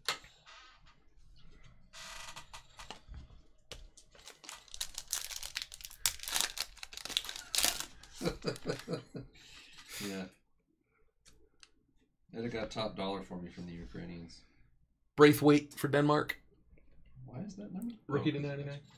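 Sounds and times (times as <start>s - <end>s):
foil wrapper tearing and crinkling: 4.2s - 8.6s.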